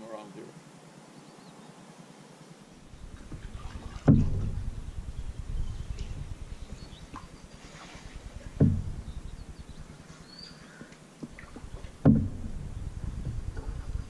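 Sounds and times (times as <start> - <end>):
canoe paddling: 2.8 - 14.0
paddle knocking canoe side: 3.0 - 10.2, 10.8 - 14.0.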